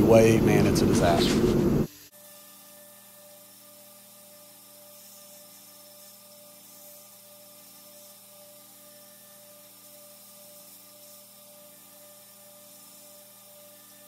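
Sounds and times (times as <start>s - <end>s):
faint mains hum with hiss: 0.0s - 14.0s.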